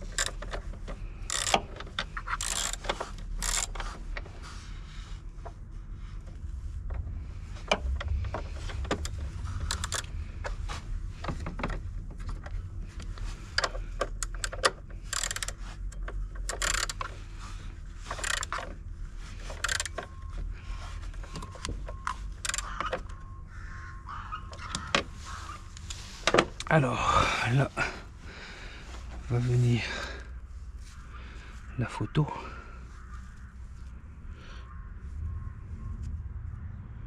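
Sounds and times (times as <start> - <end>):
ratchet wrench clicking: 0.0 - 4.2, 8.7 - 10.2, 13.1 - 17.2, 18.0 - 18.7, 19.4 - 20.1, 21.4 - 23.2.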